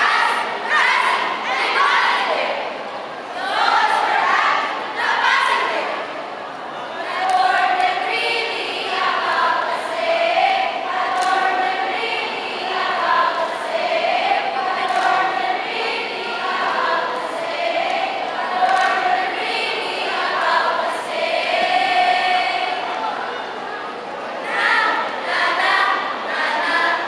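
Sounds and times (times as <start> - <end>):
women chanting in unison: 0.0 - 2.7, 3.4 - 6.0, 7.0 - 22.8, 24.4 - 27.0.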